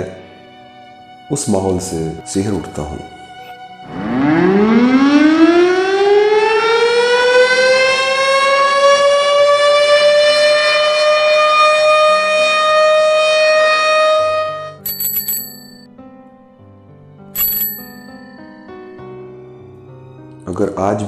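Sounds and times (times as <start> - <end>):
factory siren wailing: 3.9 - 14.4.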